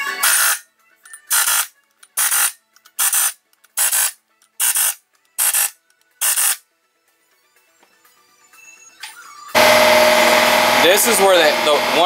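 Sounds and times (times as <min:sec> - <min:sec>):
pneumatic impact wrench bursts: 0:00.2 - 0:00.6, 0:01.3 - 0:06.6.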